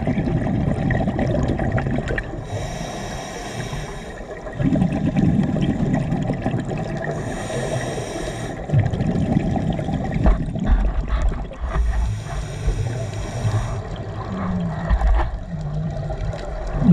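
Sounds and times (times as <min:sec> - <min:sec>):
gurgling exhaled bubbles: 0:00.0 - 0:16.9
regulator hissing inhalation: 0:02.4 - 0:04.4, 0:07.1 - 0:08.7, 0:11.8 - 0:14.0.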